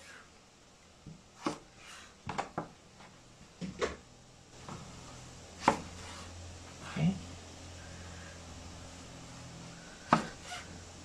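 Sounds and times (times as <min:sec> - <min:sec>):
knife chopping on cutting board: 0:01.4 - 0:02.7, 0:05.6 - 0:06.3, 0:10.1 - 0:10.7.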